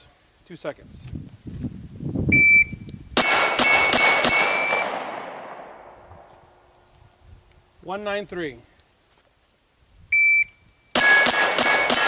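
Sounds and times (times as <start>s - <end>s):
shot timer beep: 2.4s - 4.9s, 10.2s - 12.0s
steel targets ringing: 3.2s - 5.0s, 11.0s - 12.0s
gunshots: 3.2s - 6.0s, 11.0s - 12.0s.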